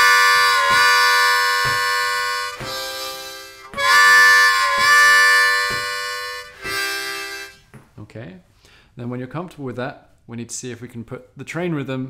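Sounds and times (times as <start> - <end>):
breath blown over harmonica: 0.0 - 7.6
harmonica wailing chord: 0.0 - 7.6.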